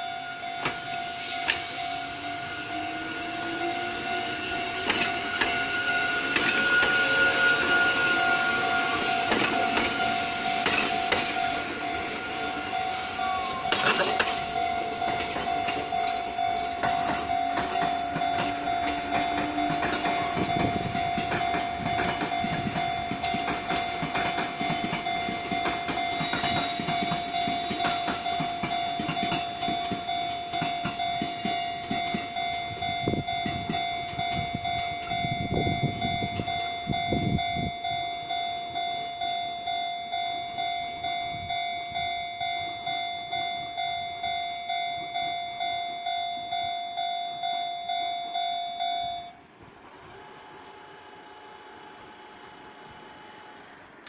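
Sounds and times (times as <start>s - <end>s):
level crossing bell ringing: 0.0s - 49.4s
train clattering over rail joints: 4.1s - 37.0s.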